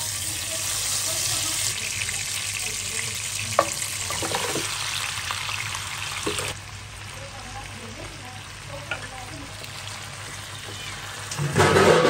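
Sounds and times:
hot oil sizzling in a pan: 0.0 - 12.0.

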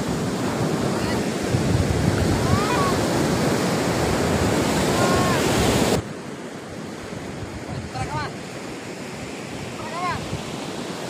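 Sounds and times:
ocean surf on sandy beach: 0.0 - 11.0
wind rumbling on microphone: 0.0 - 11.0.

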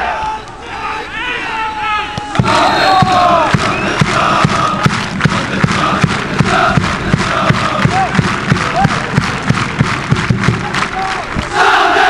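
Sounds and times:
football crowd noise: 0.0 - 12.0
loud rhythmic thumps: 2.2 - 12.0.

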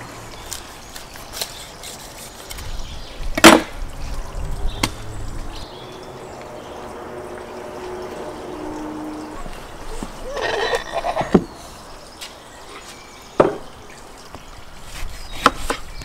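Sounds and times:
knife scraping and crunching: 0.4 - 2.7.

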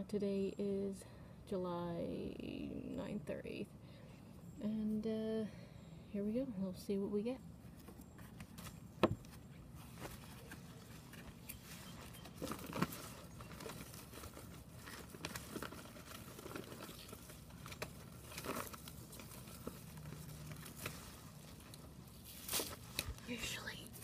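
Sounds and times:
faint steady hum: 0.0 - 24.0
foliage and grow bag rustling: 7.6 - 24.0.

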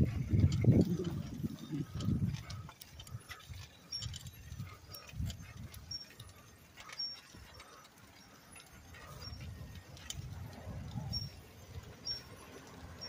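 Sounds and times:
bike rolling on concrete: 0.0 - 13.0.

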